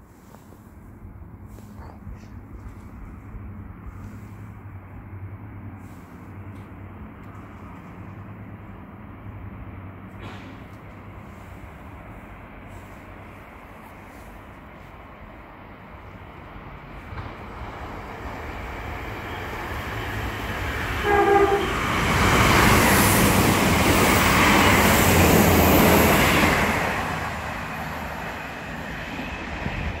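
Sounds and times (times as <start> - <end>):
diesel train passing: 0.0 - 30.0
train horn blast: 21.0 - 22.0.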